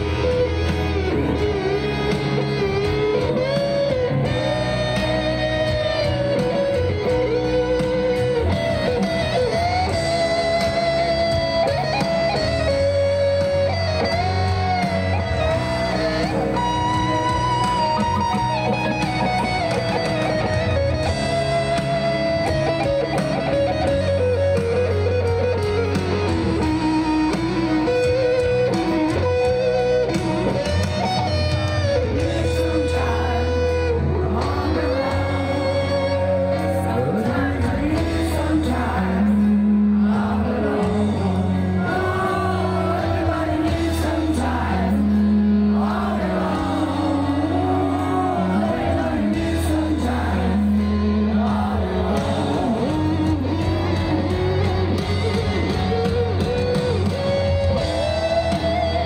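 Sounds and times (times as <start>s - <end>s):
bass: 0.0s - 59.0s
electric guitar solo: 0.0s - 59.0s
piano: 0.0s - 59.0s
person singing: 32.0s - 54.6s.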